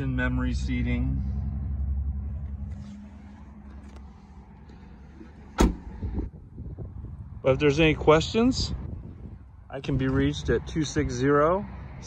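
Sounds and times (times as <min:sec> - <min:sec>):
car door shutting: 0:05.2 - 0:06.3.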